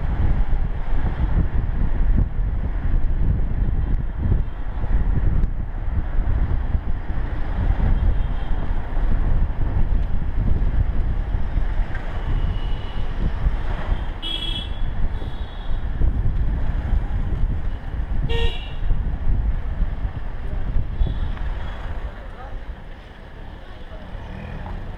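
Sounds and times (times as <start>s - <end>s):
wind buffeting microphone: 0.0s - 23.3s
vehicle rumble on road: 0.0s - 24.9s
vehicle horn toot: 14.2s - 15.8s, 18.3s - 18.9s.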